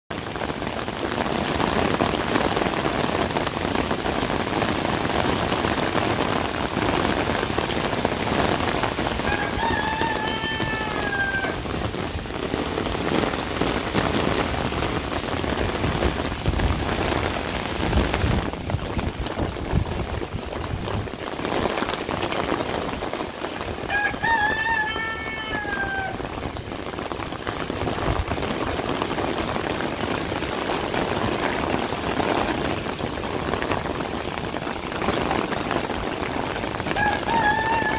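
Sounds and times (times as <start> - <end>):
rain falling on concrete: 0.1 - 37.9
rooster crowing: 9.2 - 11.7, 23.9 - 26.2, 37.0 - 37.9.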